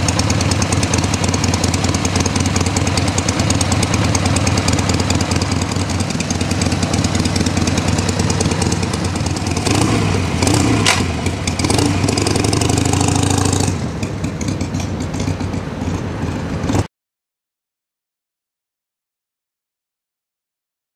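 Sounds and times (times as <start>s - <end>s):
motorcycle engine idling: 0.0s - 16.9s.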